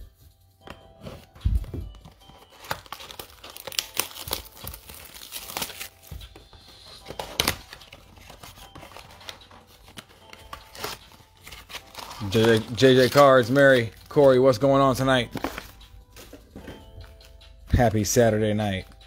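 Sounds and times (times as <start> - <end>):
plastic wrapping tearing: 2.5 - 6.0, 7.4 - 13.8.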